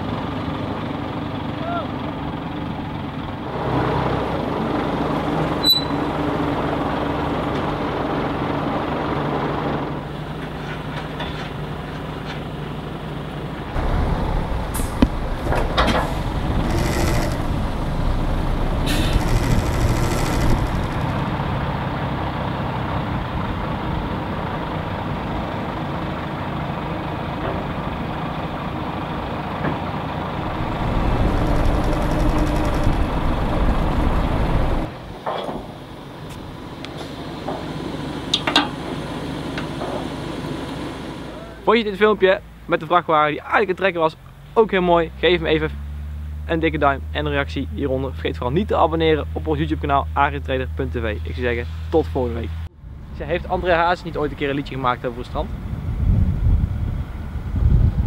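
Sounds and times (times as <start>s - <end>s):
diesel truck engine under load: 0.0s - 42.7s
short hisses: 14.6s - 21.1s.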